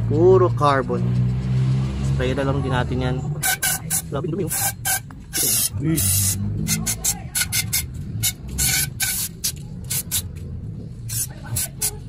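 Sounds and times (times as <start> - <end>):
aerosol spray hissing bursts: 3.6 - 6.4, 8.6 - 10.3, 11.1 - 12.0.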